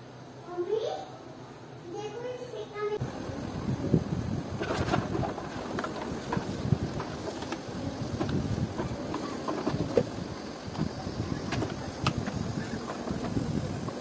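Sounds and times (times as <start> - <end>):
brush scrubbing plastic: 4.5 - 14.0.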